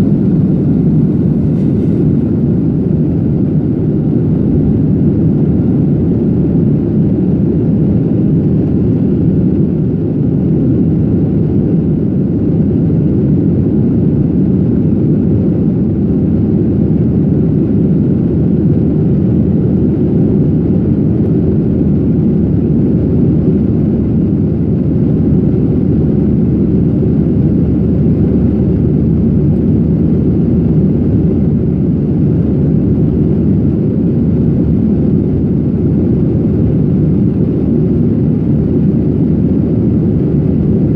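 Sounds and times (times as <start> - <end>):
rushing air: 0.0 - 3.0
jet engines droning: 0.0 - 40.9.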